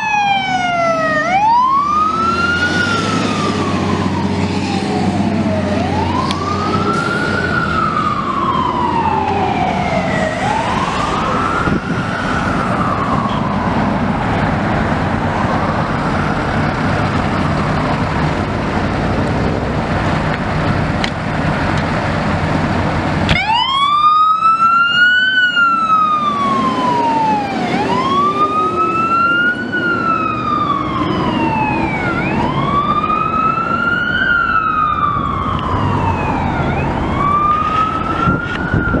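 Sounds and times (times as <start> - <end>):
electronic siren wailing: 0.0 - 14.2, 23.3 - 39.0
fire truck siren wailing: 0.0 - 39.0
truck engine rumble: 0.0 - 39.0.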